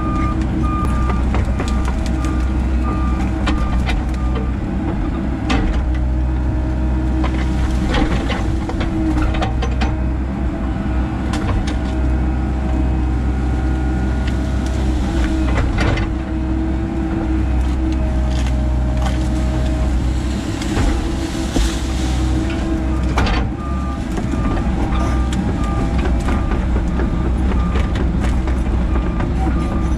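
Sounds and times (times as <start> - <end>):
excavator diesel engine: 0.0 - 29.9
roots cracking: 0.3 - 4.4, 17.3 - 29.4.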